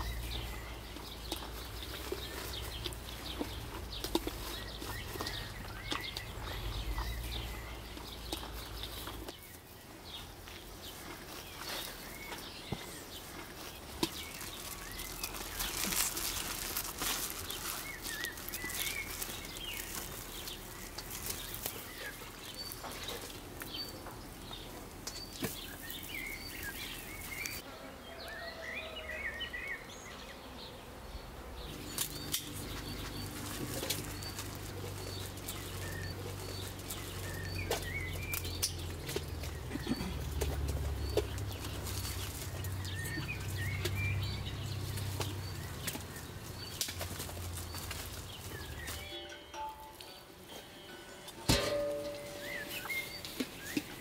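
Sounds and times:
small birds chirping: 0.0s - 54.0s
cloth sack rustling: 14.2s - 22.0s.

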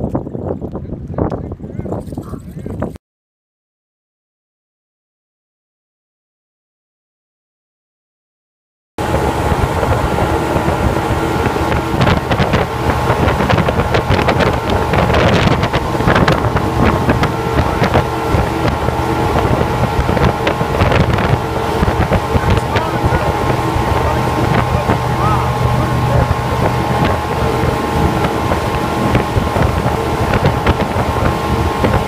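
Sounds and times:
wind buffeting microphone: 0.0s - 3.0s, 9.0s - 32.0s
motorboat engine running: 9.0s - 32.0s.

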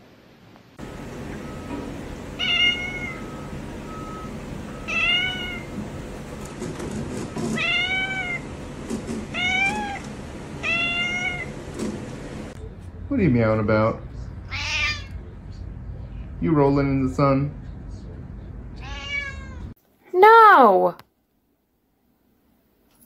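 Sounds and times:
cat meowing: 2.4s - 3.4s, 4.9s - 5.7s, 7.6s - 8.4s, 9.3s - 10.0s, 10.6s - 11.5s, 14.4s - 15.2s, 18.8s - 19.7s.

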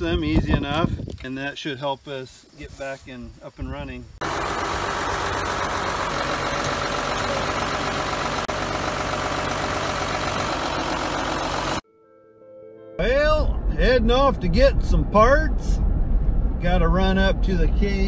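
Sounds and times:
tractor engine idling: 4.2s - 11.8s.

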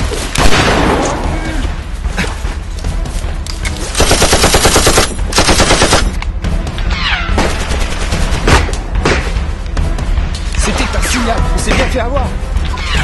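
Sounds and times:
machine-gun fire: 4.0s - 6.2s.

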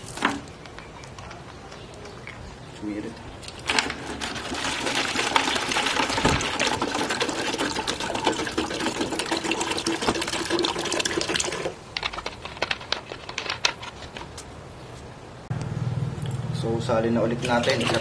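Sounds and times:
liquid pouring into plastic bottle: 3.7s - 11.8s, 17.4s - 18.0s.

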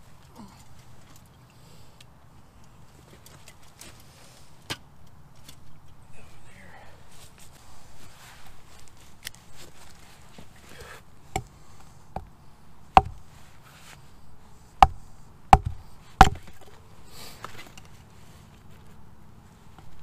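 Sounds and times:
hatchet chopping log: 11.3s - 12.3s, 12.9s - 13.3s, 14.8s - 16.7s.

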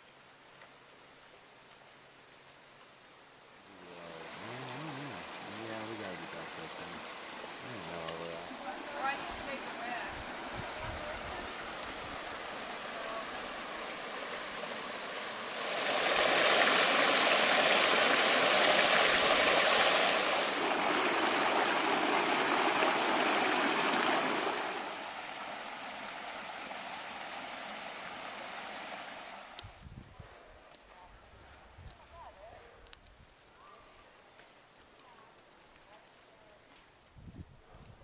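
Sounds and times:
creek flowing over rocks: 3.7s - 29.6s.

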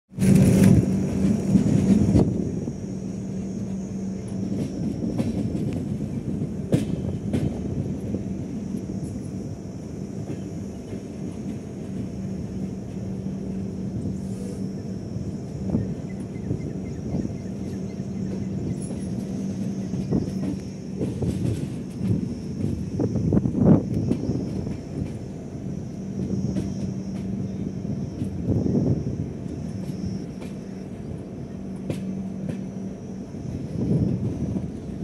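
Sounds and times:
sharp clicks over rails: 0.1s - 2.6s, 3.3s - 13.9s, 15.4s - 27.5s, 29.4s - 35.0s
train wheels rumbling on track: 0.1s - 35.0s.

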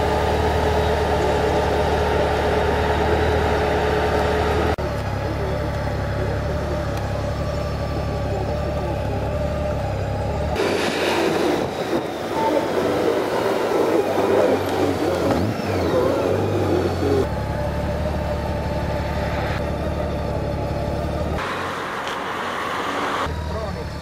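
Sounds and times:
motorcycle engine: 0.0s - 24.0s
rushing wind: 10.6s - 15.9s.

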